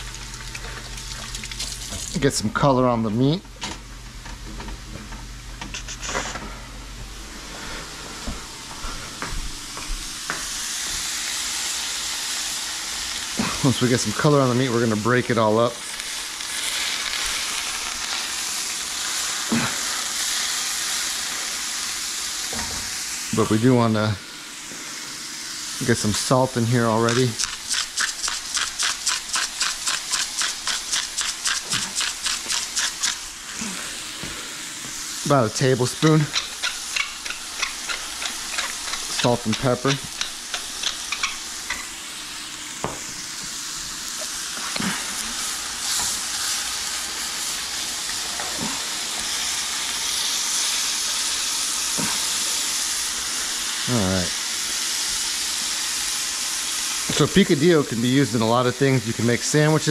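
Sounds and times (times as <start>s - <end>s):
meat sizzling in a frying pan: 0.0s - 2.3s, 9.6s - 59.9s
salt mill grinding: 26.9s - 33.6s, 35.8s - 42.0s.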